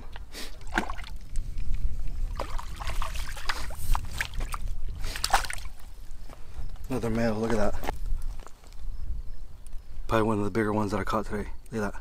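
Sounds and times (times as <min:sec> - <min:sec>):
water splashing and sloshing: 0:00.0 - 0:06.3.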